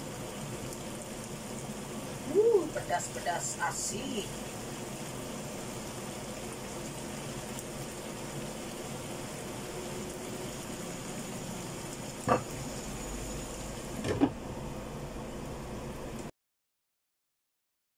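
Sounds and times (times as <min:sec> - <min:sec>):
sauce sizzling in a frying pan: 0:00.0 - 0:16.3
glass lid clanking on pan: 0:12.3 - 0:12.6.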